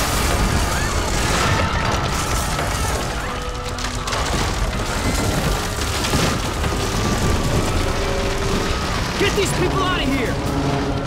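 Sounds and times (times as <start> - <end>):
debris crashing: 0.0 - 11.0
dramatic background music: 0.0 - 11.0.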